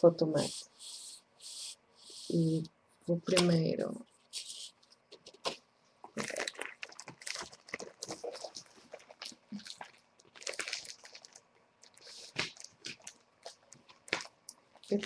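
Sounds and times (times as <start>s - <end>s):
paper rustling and crinkling: 6.2s - 11.4s.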